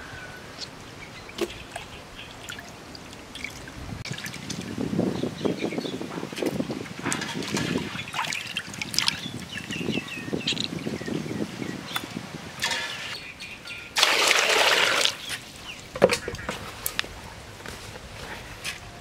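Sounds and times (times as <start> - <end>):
water dripping and splashing: 1.3 - 4.9, 6.2 - 10.8
water poured into metal pot: 14.0 - 15.2.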